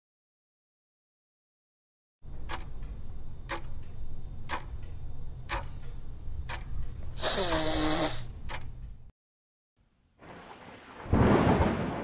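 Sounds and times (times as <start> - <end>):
clock ticking: 2.3 - 7.7, 8.3 - 9.1
loud hissing burst: 7.2 - 8.3.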